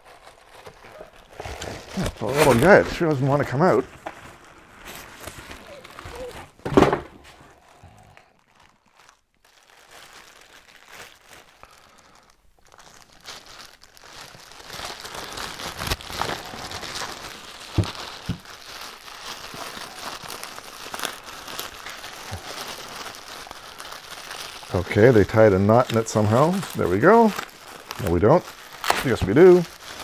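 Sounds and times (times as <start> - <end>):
plastic bag crinkling: 0.0 - 30.0.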